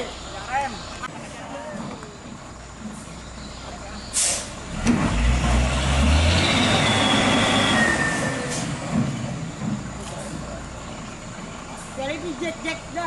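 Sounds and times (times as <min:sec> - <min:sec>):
diesel truck engine revving: 0:03.2 - 0:13.0
air hiss: 0:04.1 - 0:04.6
high squeal: 0:06.2 - 0:08.8.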